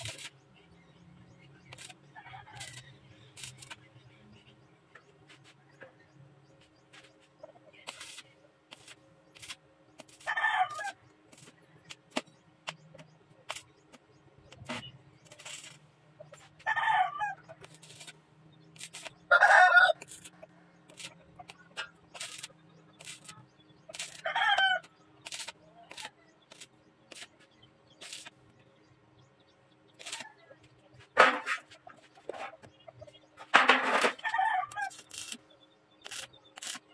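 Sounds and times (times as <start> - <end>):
sharp clicks and crackles: 0.0 - 0.4, 1.6 - 3.9, 7.8 - 16.6, 17.5 - 19.3, 19.9 - 28.4, 30.0 - 36.9
roosters crowing: 10.2 - 11.1, 16.6 - 17.8, 19.1 - 21.1, 24.0 - 25.0, 33.9 - 35.4.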